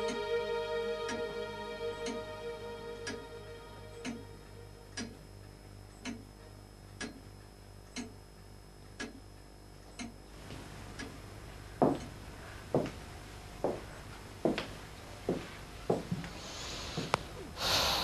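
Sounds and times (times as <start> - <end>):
clock ticking: 2.0 - 2.2, 3.0 - 3.2, 4.0 - 8.2, 8.9 - 10.2, 10.9 - 11.2, 11.8 - 12.2
person gasping breaths: 16.4 - 18.0.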